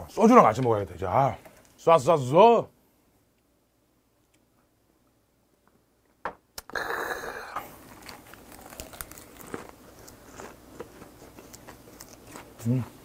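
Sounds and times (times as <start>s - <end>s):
crunchy chewing of lettuce: 6.8s - 13.0s.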